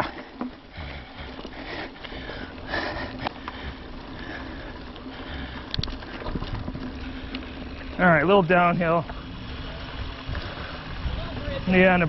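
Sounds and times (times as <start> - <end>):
rider breathing hard: 0.0 - 8.0, 10.2 - 11.1
bike tyres rumbling on dirt: 0.0 - 12.0
sharp clicks from bike: 4.9 - 7.7
wind on microphone: 9.3 - 12.0.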